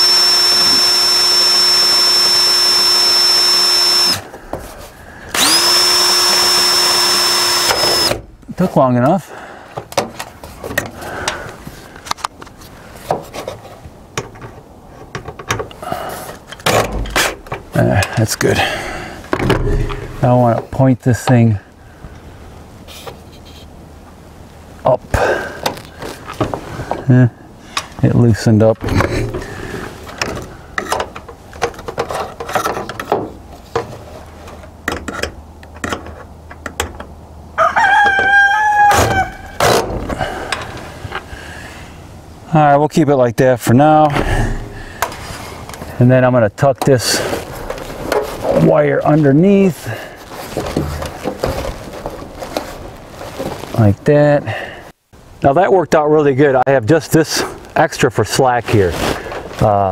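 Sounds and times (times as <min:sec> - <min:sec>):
rooster crowing: 0:37.6 - 0:39.6.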